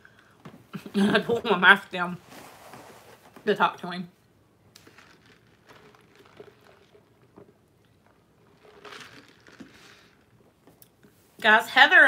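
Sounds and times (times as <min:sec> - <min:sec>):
sip through plastic straw: 0:04.8 - 0:10.4.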